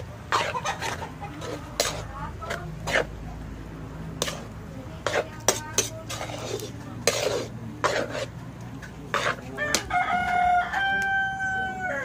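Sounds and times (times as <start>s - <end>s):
metal spoon scraping wok: 0.0s - 10.8s
rooster crowing: 9.6s - 12.0s.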